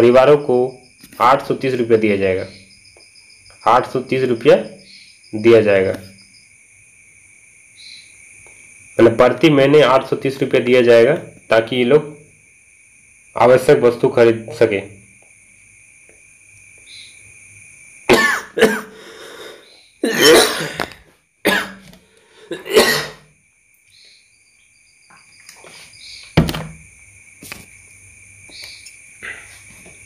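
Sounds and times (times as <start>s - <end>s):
man coughing: 18.1s - 21.8s, 22.4s - 23.3s.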